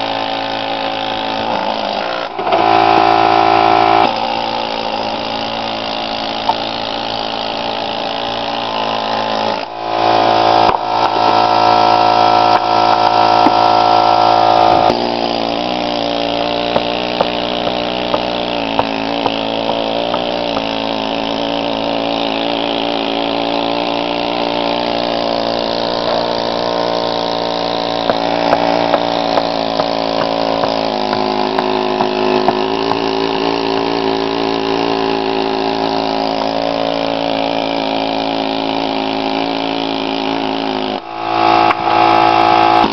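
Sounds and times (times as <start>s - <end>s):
pneumatic air hammer buzzing: 0.0s - 42.9s.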